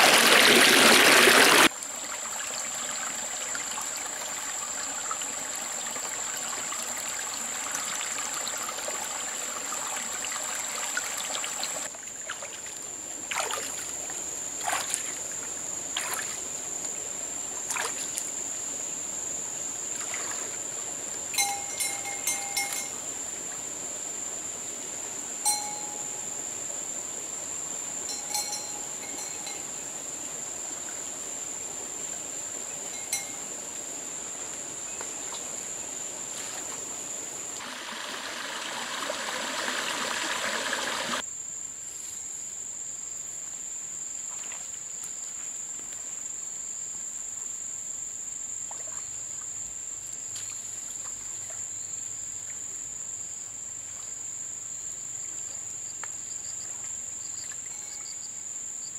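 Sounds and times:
stream water trickling: 0:00.0 - 0:41.2.

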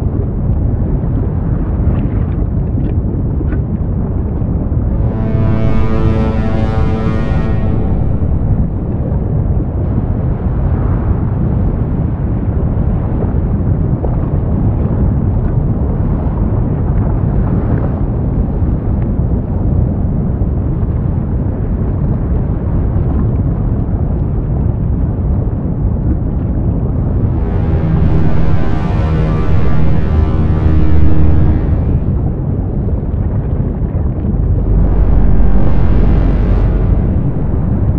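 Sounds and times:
volcano rumbling: 0:02.7 - 0:10.2, 0:26.5 - 0:37.9.

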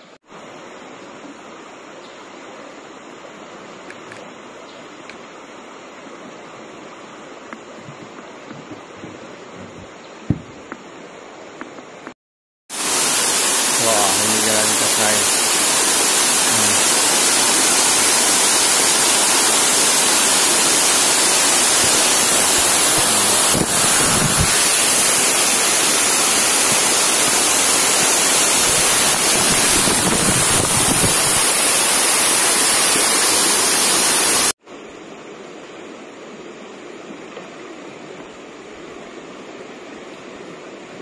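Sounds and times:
quiet rush of water: 0:00.0 - 0:41.0
waterfall rushing: 0:12.7 - 0:34.6.

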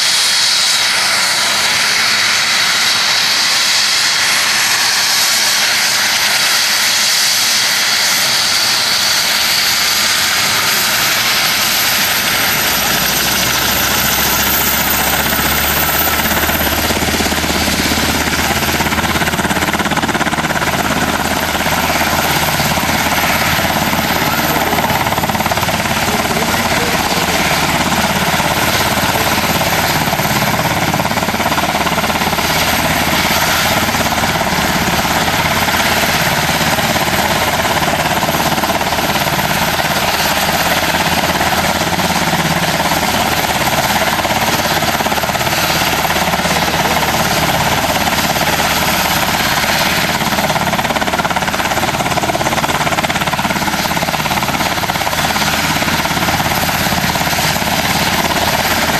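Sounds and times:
helicopter turbine whine: 0:00.0 - 0:58.9.

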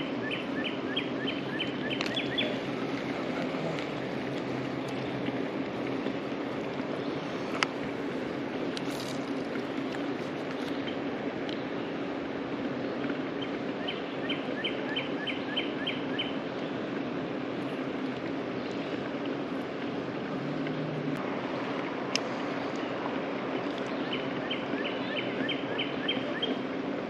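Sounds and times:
river water flowing: 0:00.0 - 0:27.0
bird singing falling notes: 0:00.3 - 0:04.2.

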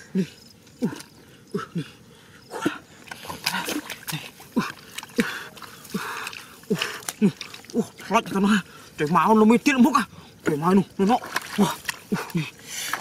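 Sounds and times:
hands splashing in muddy water: 0:03.0 - 0:13.0.

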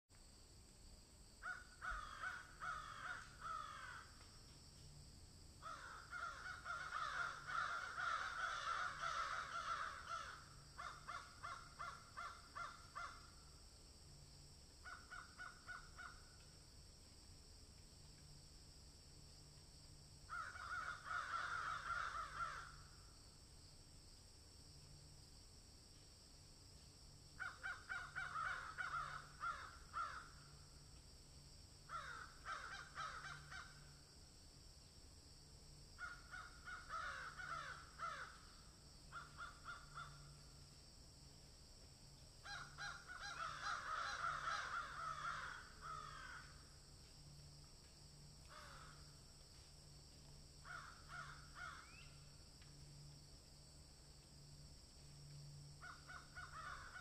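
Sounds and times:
harsh cawing bird calls: 0:01.4 - 0:04.2, 0:05.6 - 0:13.5, 0:14.8 - 0:16.4, 0:20.3 - 0:23.0, 0:27.4 - 0:30.6, 0:31.9 - 0:33.9, 0:36.0 - 0:40.4, 0:42.4 - 0:46.7, 0:48.5 - 0:49.0, 0:50.6 - 0:52.2, 0:55.8 - 0:57.0.

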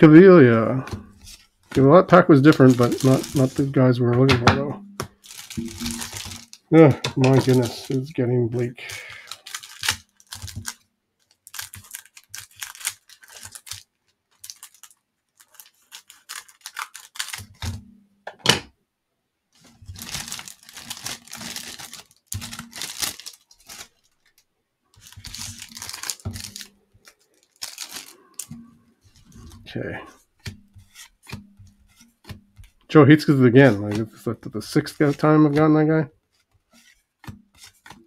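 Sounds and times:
cellophane wrapper crinkling and tearing: 0:01.1 - 0:03.8, 0:05.1 - 0:17.8, 0:19.6 - 0:29.7.

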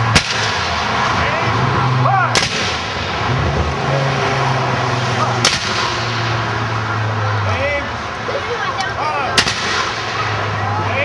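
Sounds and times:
musket shot: 0:00.1 - 0:00.8, 0:02.3 - 0:03.0, 0:05.4 - 0:06.0, 0:09.4 - 0:10.2.

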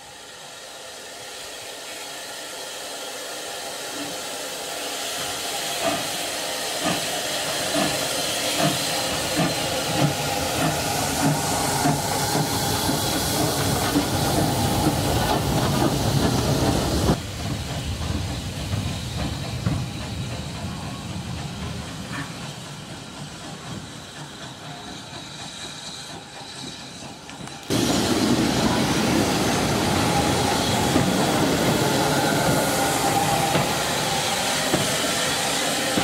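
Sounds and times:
steady train sound: 0:00.0 - 0:36.0
steam hissing: 0:00.0 - 0:36.0
steam locomotive exhaust beats: 0:00.0 - 0:36.0.

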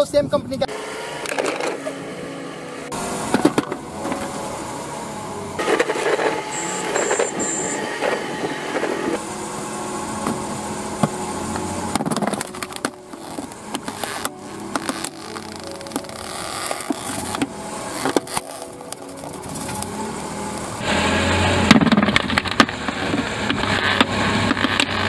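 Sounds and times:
car engine running: 0:00.7 - 0:15.6, 0:16.3 - 0:25.0
plastic helmet clicking and creaking: 0:11.6 - 0:19.9, 0:21.8 - 0:25.0.

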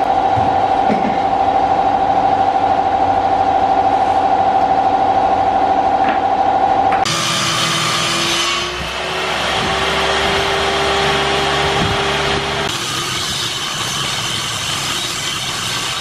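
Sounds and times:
table saw whining: 0:05.3 - 0:16.0.

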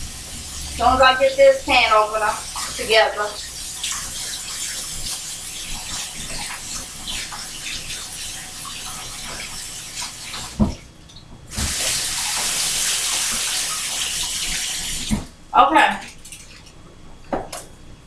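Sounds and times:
food sizzling in a frying pan: 0:00.0 - 0:10.5, 0:11.5 - 0:15.0.

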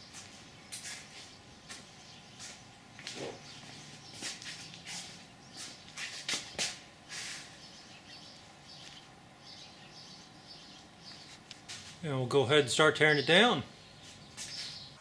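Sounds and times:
faint clicks and shuffles: 0:00.1 - 0:07.5, 0:11.0 - 0:12.0, 0:14.0 - 0:14.9
faint high bird chirps: 0:13.1 - 0:15.0.

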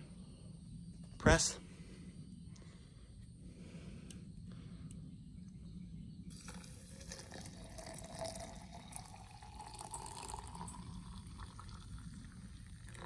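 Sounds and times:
hot water pouring into mug: 0:06.3 - 0:13.0.

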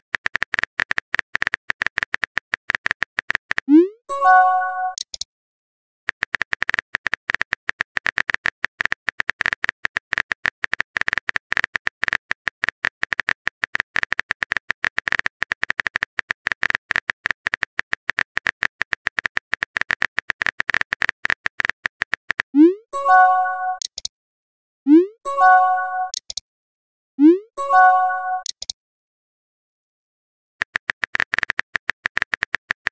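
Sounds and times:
phone keyboard tapping clicks: 0:26.1 - 0:26.4, 0:28.4 - 0:28.8, 0:30.6 - 0:32.9.

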